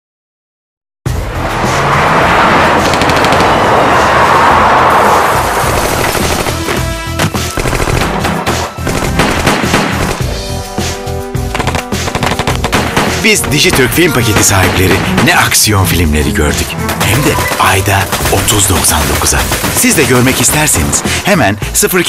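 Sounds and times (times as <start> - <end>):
dense rush of noise: 1.1 - 6.4
dramatic action music: 1.1 - 22.0
automatic gunfire: 5.7 - 6.8, 7.5 - 10.3, 11.5 - 13.2, 16.8 - 20.8.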